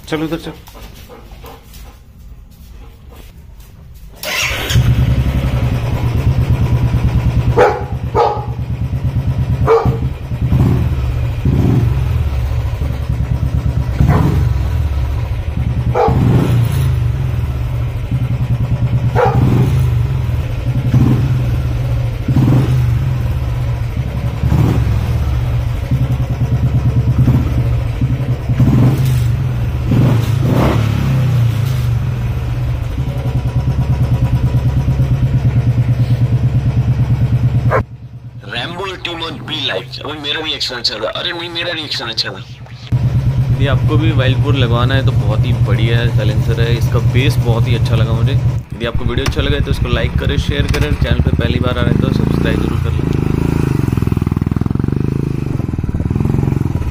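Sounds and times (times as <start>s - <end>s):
motorcycle engine idling: 4.2s - 40.6s, 42.4s - 56.9s
dog barking: 7.5s - 8.6s, 9.6s - 10.1s, 14.0s - 14.4s, 15.9s - 16.4s, 19.1s - 19.7s, 37.6s - 37.9s.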